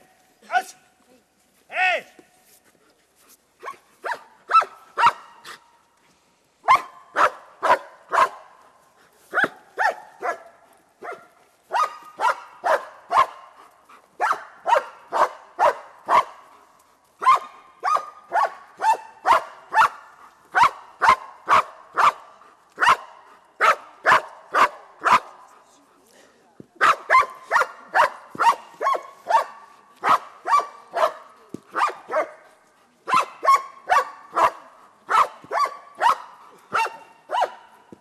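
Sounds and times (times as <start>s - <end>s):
dog barking: 3.6s - 5.6s, 6.6s - 8.5s, 9.3s - 13.6s, 14.2s - 16.4s, 17.2s - 25.4s, 26.8s - 32.4s, 33.1s - 37.8s.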